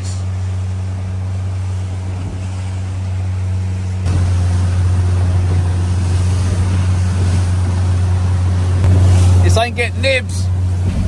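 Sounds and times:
outboard motor droning: 0.0s - 11.0s
water rushing past hull: 0.0s - 11.0s.

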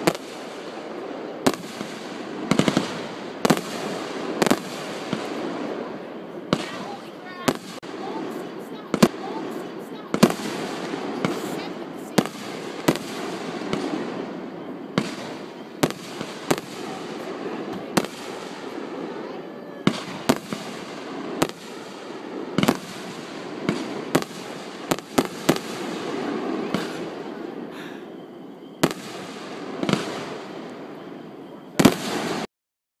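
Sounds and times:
fireworks bangs: 0.0s - 32.5s.

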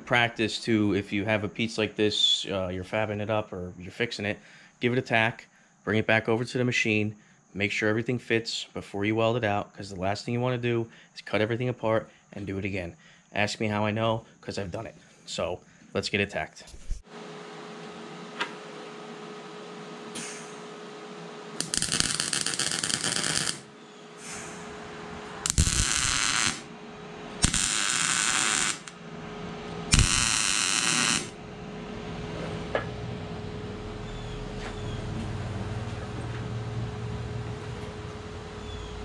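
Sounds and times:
steady welder hum: 16.9s - 39.0s
welding arc bursts: 21.6s - 23.8s, 25.4s - 26.8s, 27.4s - 29.0s, 29.9s - 31.4s.

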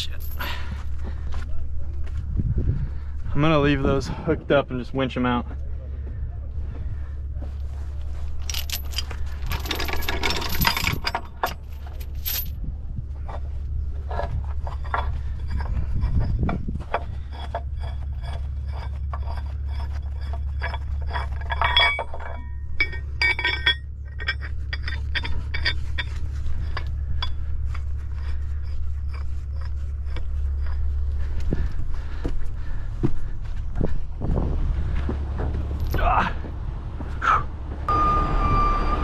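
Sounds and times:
metal chains clinking: 0.0s - 0.6s, 8.3s - 12.6s, 14.0s - 32.2s, 35.6s - 36.2s
steady low drone: 0.0s - 39.0s.

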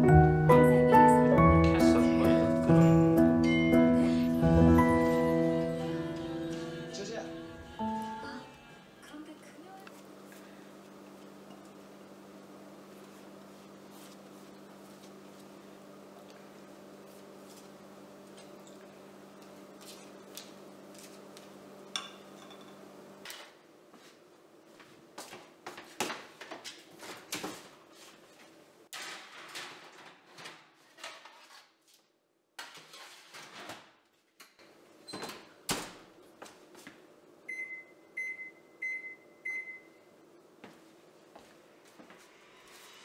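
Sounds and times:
baking sheets clattering: 28.9s - 31.8s
oven control panel beeps: 37.5s - 40.1s.

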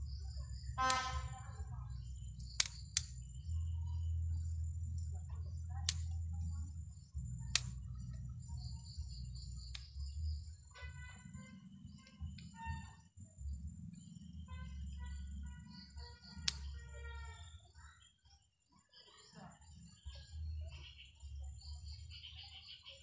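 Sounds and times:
low steady rumble: 0.0s - 17.7s
pruning scissors snipping twigs: 2.5s - 3.2s, 5.8s - 6.3s, 7.4s - 8.2s, 16.2s - 16.8s.

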